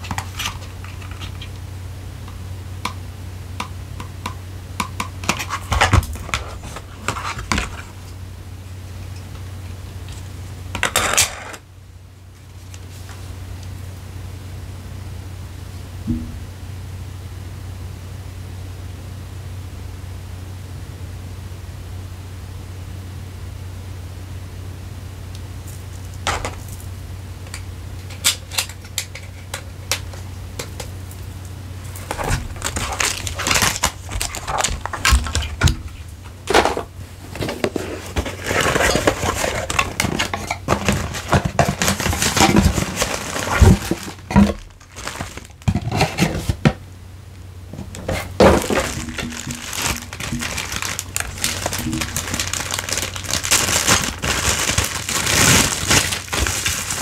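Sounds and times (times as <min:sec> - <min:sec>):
wrapping crinkling and rustling: 0:00.0 - 0:01.6, 0:27.5 - 0:46.7, 0:47.7 - 0:57.0
low steady hum: 0:00.0 - 0:57.0.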